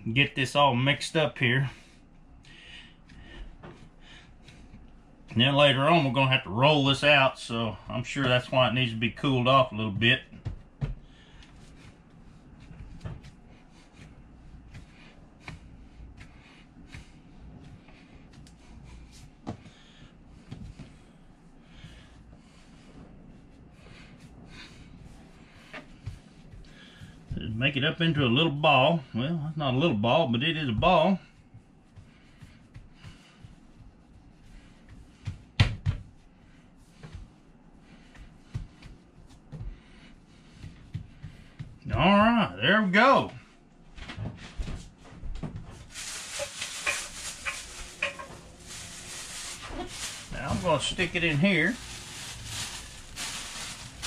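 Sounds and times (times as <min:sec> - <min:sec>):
hands kneading dough: 0:00.1 - 0:54.0
dough thumping on countertop: 0:35.2 - 0:36.2.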